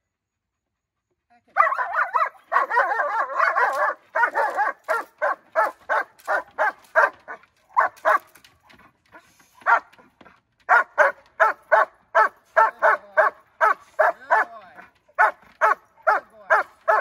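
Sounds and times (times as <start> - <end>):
dog barking rapidly: 1.6 - 8.3, 9.6 - 9.9, 10.7 - 14.6, 15.2 - 17.0.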